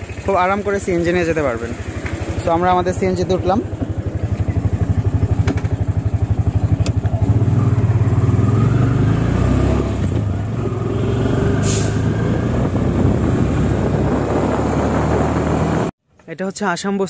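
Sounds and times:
auto-rickshaw engine chugging: 0.0 - 8.5.

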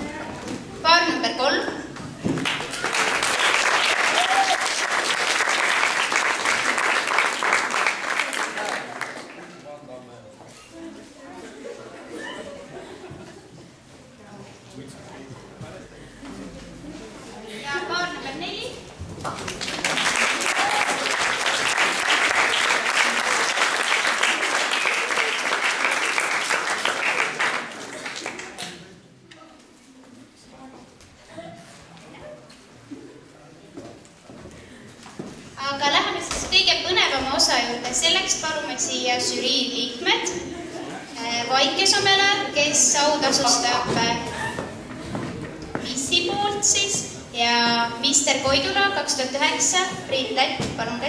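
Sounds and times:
audience applause: 2.4 - 9.6, 19.2 - 28.8.

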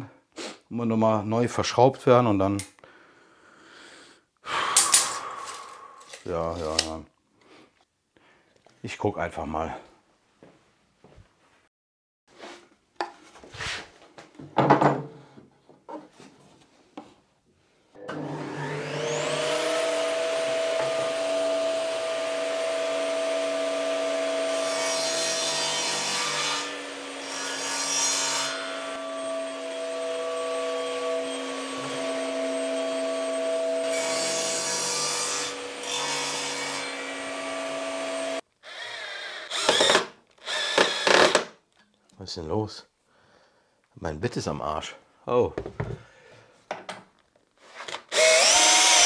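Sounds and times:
wood knocking: 14.4 - 15.1
table saw cutting wood: 18.0 - 41.5, 47.8 - 49.0.

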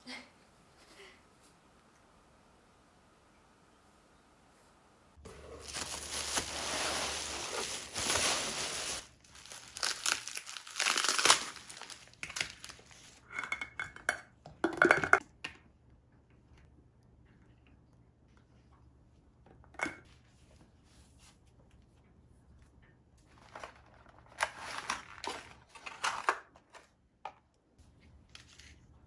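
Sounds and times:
bubble wrap crinkling: 5.2 - 13.2.

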